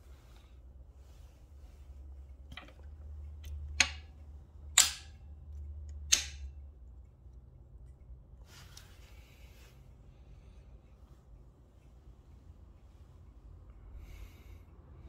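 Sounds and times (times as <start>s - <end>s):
magnet clicking onto metal frame: 4.7s - 5.2s, 5.9s - 6.5s.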